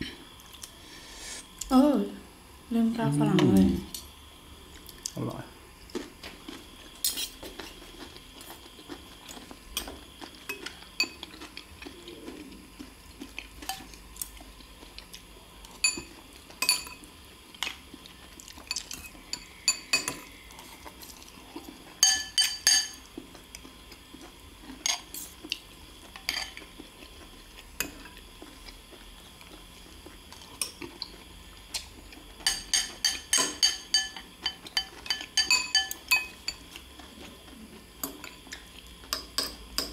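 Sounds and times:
cutlery clinking on porcelain bowls: 15.8s - 17.0s, 18.6s - 20.3s, 22.0s - 23.0s, 26.2s - 26.6s, 32.4s - 36.8s.

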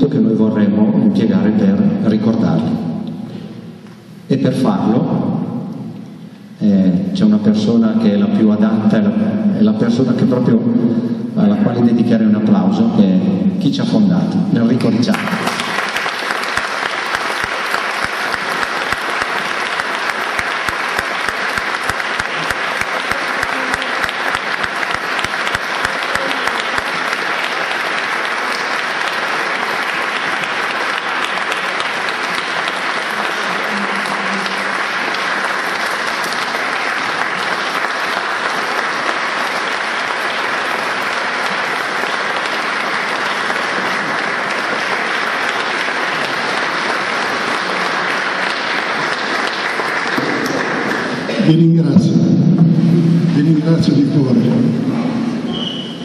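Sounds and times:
audience applauding: 14.8s - 51.7s.

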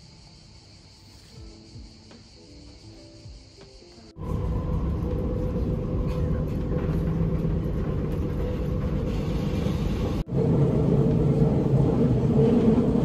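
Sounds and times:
low vehicle rumble: 4.2s - 13.0s.

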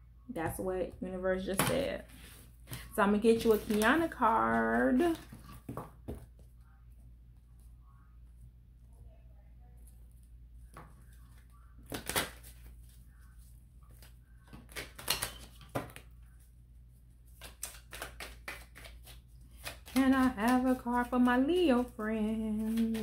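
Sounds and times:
cards being shuffled: 2.2s - 5.8s, 17.3s - 23.0s.

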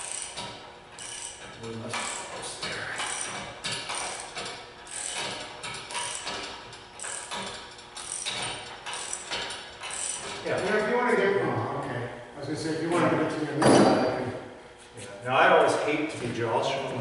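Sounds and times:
hoist chain clicking and clanking: 0.0s - 11.0s.

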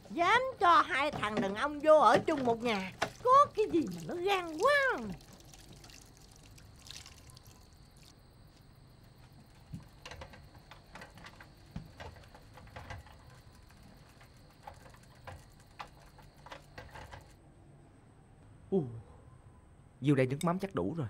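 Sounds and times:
bicycle with cans clicking: 9.6s - 17.4s.

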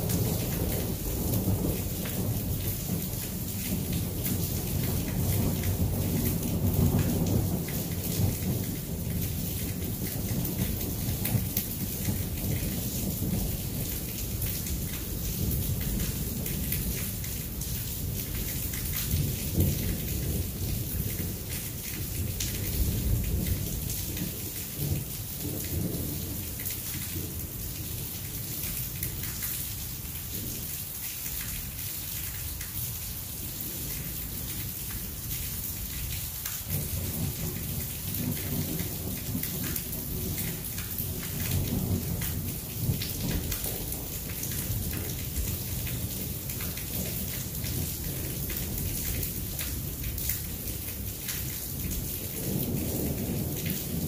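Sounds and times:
heavy rain falling: 0.0s - 54.0s
raindrops clicking: 1.7s - 30.5s
thunder rumbling: 36.6s - 54.0s.

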